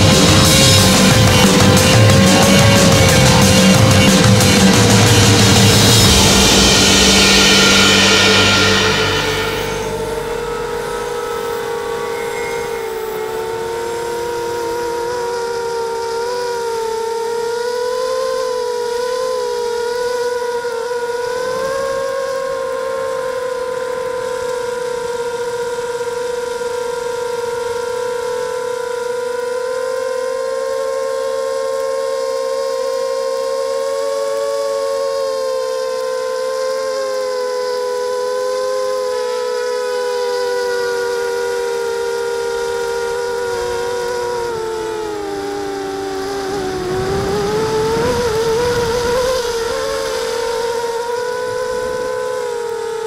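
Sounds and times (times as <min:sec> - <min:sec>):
quadcopter motors whining: 0:00.0 - 0:53.0.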